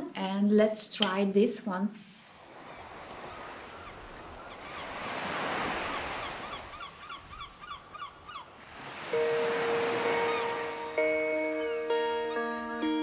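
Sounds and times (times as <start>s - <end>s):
ocean waves breaking: 2.2s - 12.7s
repeated bird calls: 2.6s - 11.9s.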